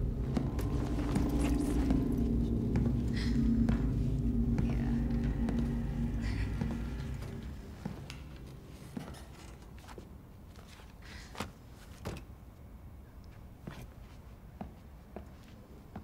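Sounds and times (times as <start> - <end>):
soft footsteps on hard floor: 0.0 - 10.9.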